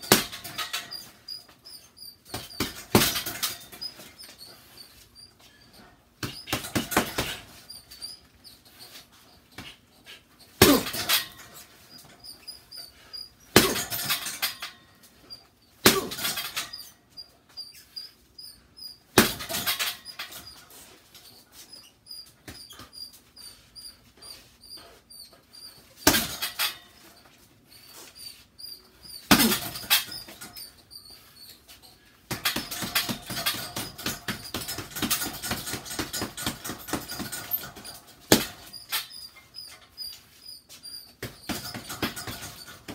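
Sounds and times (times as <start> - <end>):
gloves punching a bag: 0.0 - 4.9, 6.2 - 8.0, 10.5 - 12.5, 13.5 - 14.4, 15.8 - 16.8, 19.1 - 20.6, 25.7 - 27.1, 29.1 - 31.3, 32.3 - 38.9, 41.1 - 42.9
faint high squeaks: 0.1 - 42.9.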